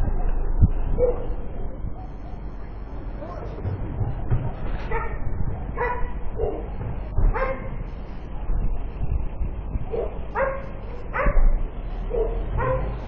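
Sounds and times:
low steady rumble: 0:00.0 - 0:13.0
dog barking: 0:01.0 - 0:02.4, 0:04.9 - 0:05.2, 0:05.8 - 0:06.7, 0:07.3 - 0:07.8, 0:09.9 - 0:13.0.

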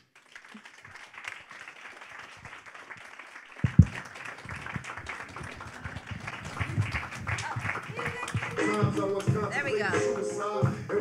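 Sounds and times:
audience applauding: 0:00.0 - 0:09.9
low thumps: 0:03.6 - 0:09.6.

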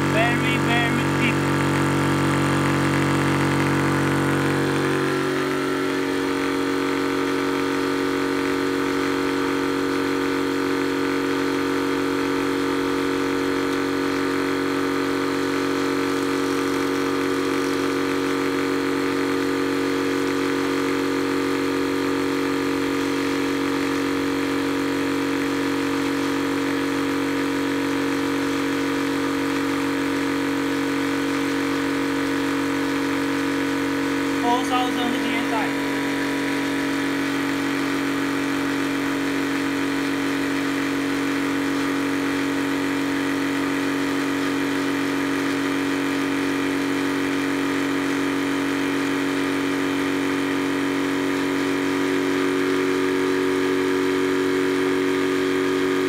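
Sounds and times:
air compressor running: 0:00.0 - 0:56.0.

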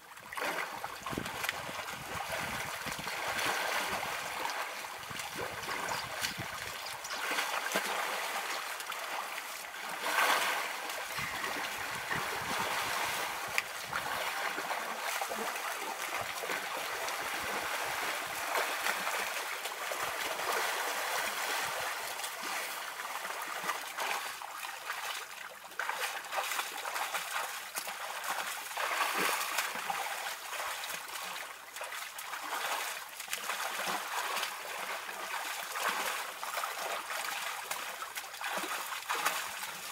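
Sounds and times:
mud and water splashing: 0:00.0 - 0:39.9.

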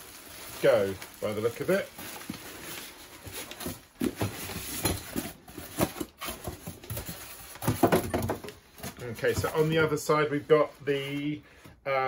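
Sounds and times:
polystyrene rubbing against cardboard: 0:00.0 - 0:04.7
plastic wrapping crinkling: 0:00.0 - 0:11.4.

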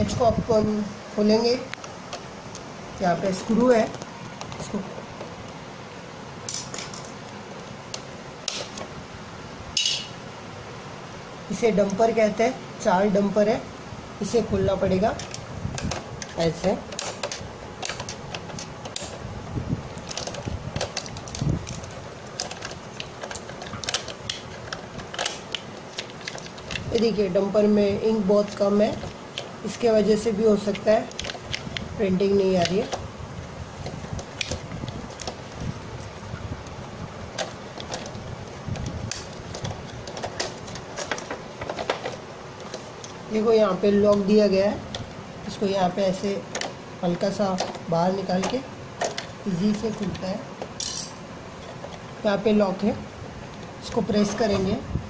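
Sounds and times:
plastic clicks and rattles: 0:15.1 - 0:19.3, 0:19.9 - 0:27.1, 0:30.7 - 0:31.9, 0:33.8 - 0:35.5, 0:36.6 - 0:43.2, 0:46.5 - 0:52.0
small plastic clicks and knocks: 0:33.8 - 0:35.4.

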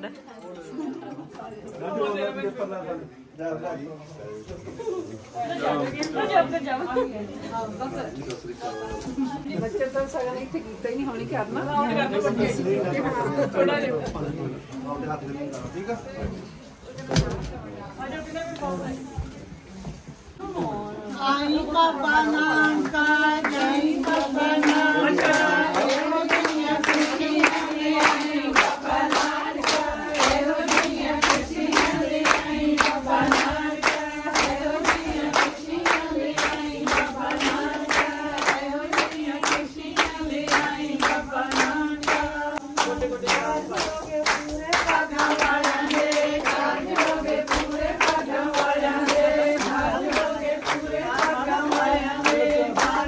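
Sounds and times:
group singing: 0:20.5 - 0:53.0
rhythmic hand-clapping: 0:21.5 - 0:53.0.

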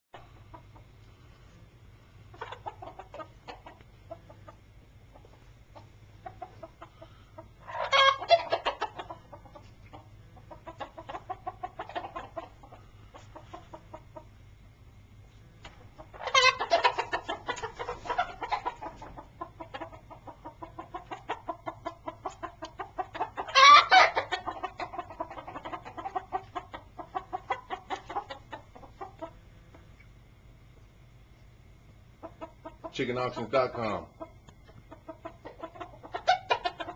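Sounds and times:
chickens clucking: 0:00.1 - 0:36.9
loud chicken calls: 0:05.2 - 0:14.4, 0:15.6 - 0:29.4, 0:32.2 - 0:36.9.

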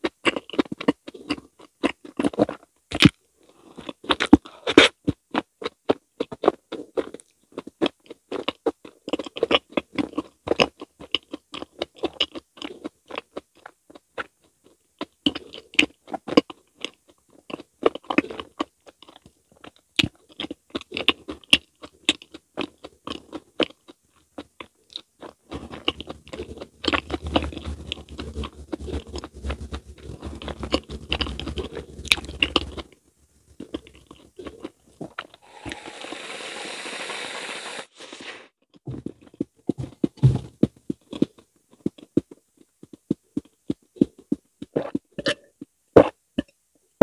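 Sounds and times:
chewing and wet mouth sounds: 0:00.0 - 0:35.8, 0:38.8 - 0:46.6
person gulping: 0:25.0 - 0:35.6, 0:44.7 - 0:46.6
steady hiss: 0:35.4 - 0:38.4.

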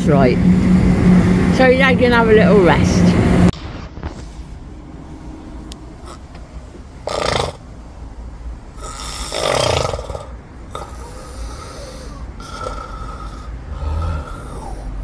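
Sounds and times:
low steady rumble: 0:00.0 - 0:07.0
person snoring: 0:08.8 - 0:15.0.

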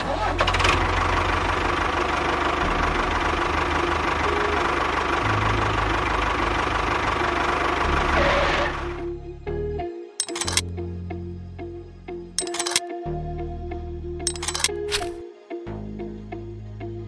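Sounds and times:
engine chugging with hiss: 0:00.1 - 0:08.9.

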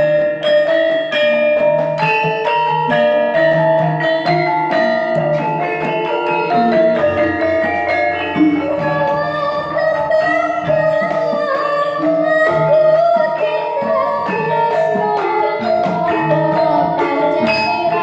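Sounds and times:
gamelan ensemble playing: 0:00.0 - 0:18.0
hand drum: 0:00.0 - 0:18.0
girl singing into a microphone: 0:08.3 - 0:18.0.

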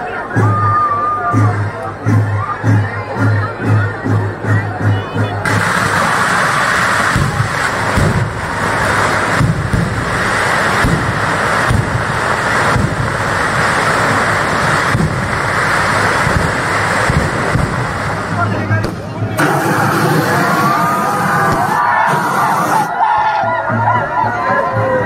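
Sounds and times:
fireworks booming: 0:05.4 - 0:22.9
fireworks crackling hiss: 0:05.4 - 0:22.9.

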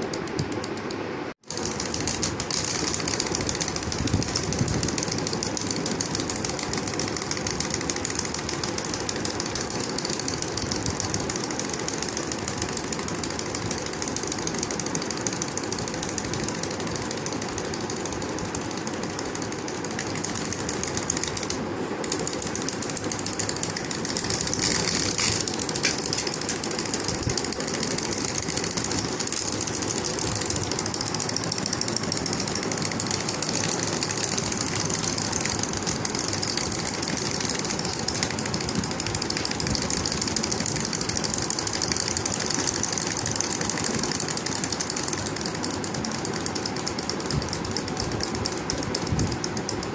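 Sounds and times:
wind-up toys clattering on table: 0:22.0 - 0:47.4.

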